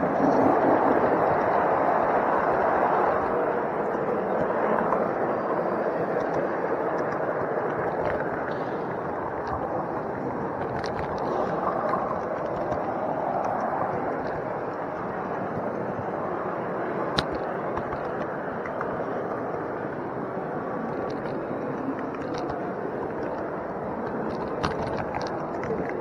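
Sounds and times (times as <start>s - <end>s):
faint clicks: 6.0s - 16.2s, 17.0s - 19.6s, 20.8s - 26.0s.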